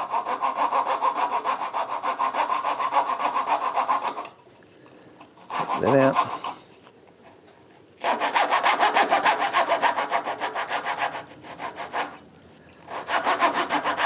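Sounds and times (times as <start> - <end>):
coping saw cutting wood: 0.0 - 4.3, 5.4 - 6.7, 8.0 - 12.2, 12.9 - 14.0.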